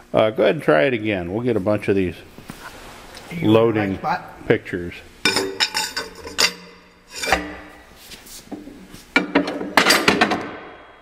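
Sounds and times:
metal clanks and scraping: 5.3s - 7.8s.

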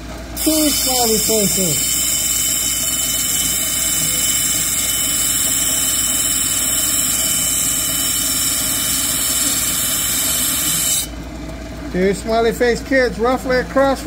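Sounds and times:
grinding machine motor hum: 0.0s - 13.6s
wet grinding wheel hiss: 0.4s - 11.1s.

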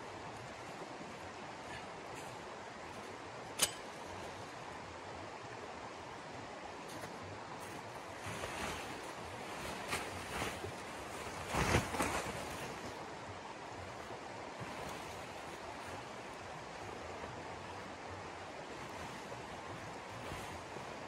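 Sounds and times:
rushing outdoor noise: 0.0s - 21.0s
canvas tent fabric flapping: 7.5s - 21.0s.

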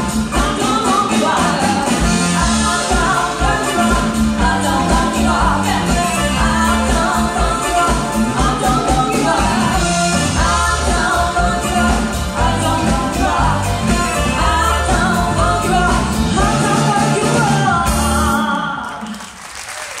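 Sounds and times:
band playing cha-cha music: 0.0s - 18.8s
woman singing: 0.0s - 19.2s.

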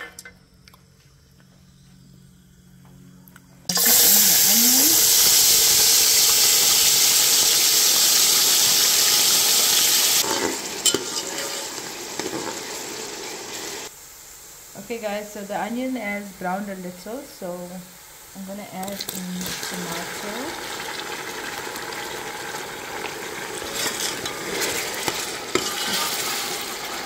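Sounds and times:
onion sizzling in hot oil: 3.7s - 27.0s
metal spoon clinking in pot: 10.8s - 11.7s.

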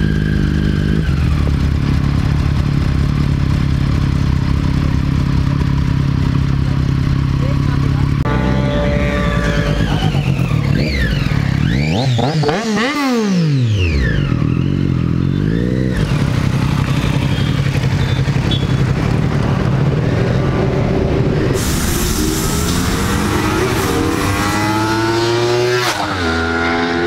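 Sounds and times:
motorcycle engines: 0.0s - 27.0s
motorcycle passing at speed: 22.8s - 27.0s.

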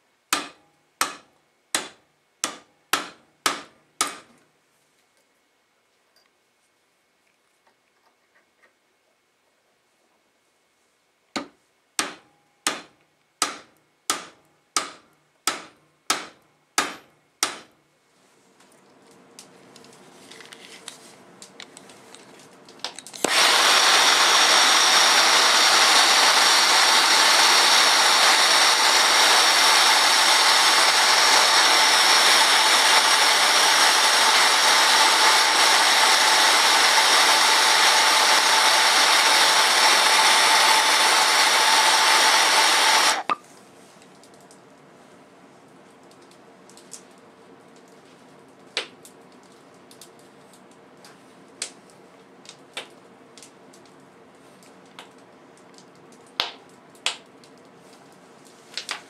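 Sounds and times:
gas torch hissing: 23.2s - 43.4s.

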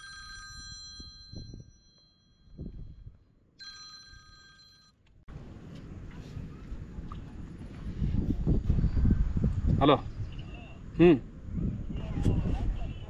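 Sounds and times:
mobile phone ringtone: 0.0s - 2.6s, 3.6s - 5.0s
outdoor rush of noise: 5.3s - 13.0s.

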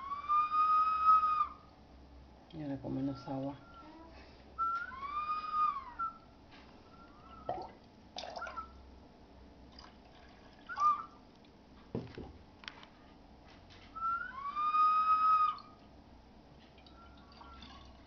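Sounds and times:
warbling whistle: 0.0s - 1.7s, 4.6s - 8.8s, 10.6s - 11.2s, 14.0s - 15.8s, 16.9s - 17.9s
whistle chirps: 0.0s - 1.7s, 4.6s - 6.3s, 10.7s - 11.2s, 14.0s - 15.8s
water gurgling: 7.3s - 8.8s.

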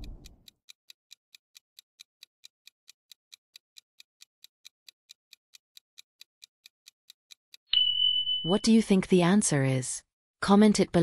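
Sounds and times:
clock ticking: 0.0s - 7.6s.

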